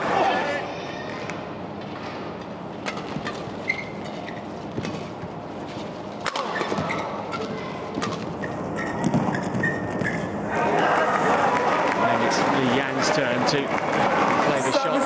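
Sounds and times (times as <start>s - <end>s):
arena crowd noise: 0.0s - 2.4s, 6.3s - 8.4s, 10.2s - 15.0s
rackets striking shuttlecock: 2.8s - 5.2s, 6.2s - 10.1s
shoes squeaking on court: 2.9s - 10.4s.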